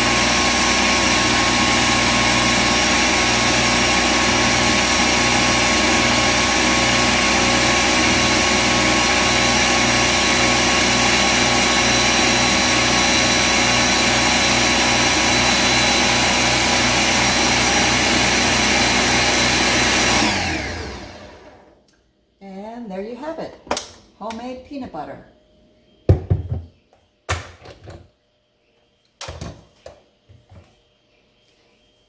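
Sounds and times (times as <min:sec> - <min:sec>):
blender whirring: 0:00.0 - 0:21.8.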